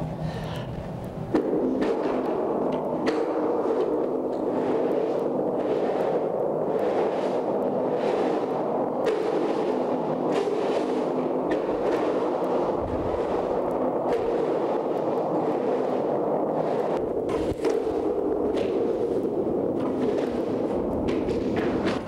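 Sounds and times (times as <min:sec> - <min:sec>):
skateboard wheels rumbling in pipe: 0:00.0 - 0:22.0.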